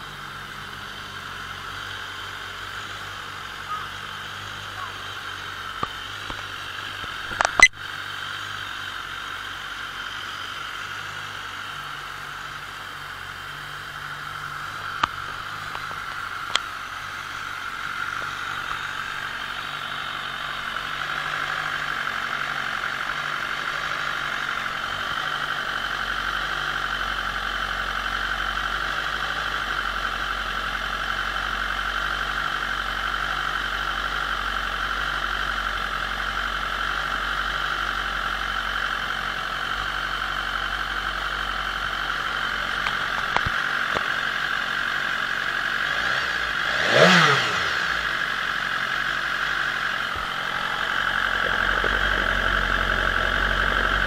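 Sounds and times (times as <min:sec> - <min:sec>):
higher-pitched hum: 0:00.0 - 0:27.4, 0:46.1 - 0:54.0
motorcycle engine idling: 0:00.0 - 0:54.0
sharp clicks: 0:07.3 - 0:07.8.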